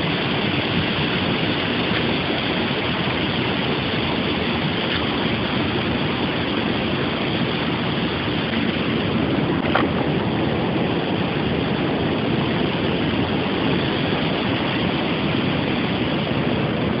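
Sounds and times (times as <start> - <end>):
river water rushing over rocks: 0.0 - 17.0.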